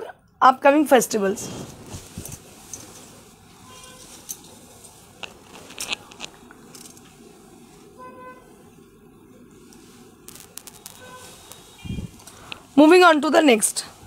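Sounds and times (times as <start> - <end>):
sharp clicks and crackles: 5.2 - 7.1, 9.7 - 12.7.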